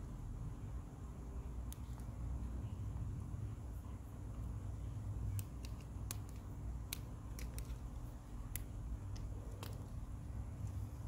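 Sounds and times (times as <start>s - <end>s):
sharp clicks of small parts: 5.3s - 10.1s.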